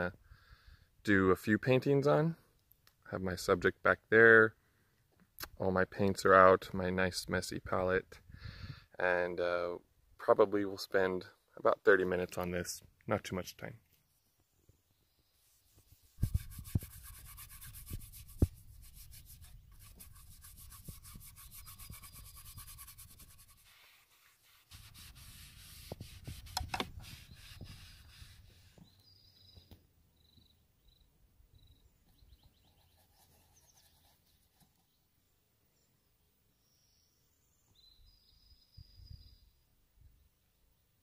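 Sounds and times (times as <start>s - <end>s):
paper towel scrubbing canvas: 15.5s - 28.8s.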